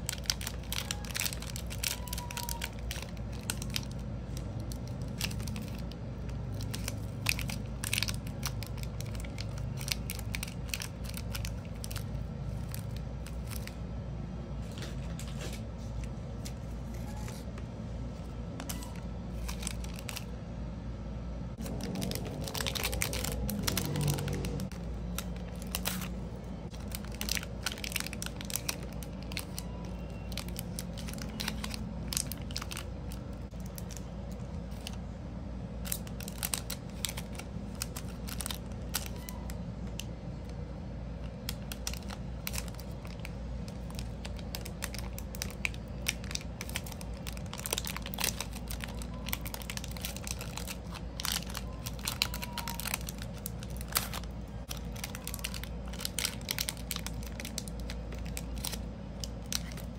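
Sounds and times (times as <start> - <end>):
plastic bag crinkling: 0.0 - 13.9, 14.7 - 20.4, 21.6 - 35.0, 35.8 - 40.1, 41.2 - 59.9
steady low hum: 2.6 - 59.9.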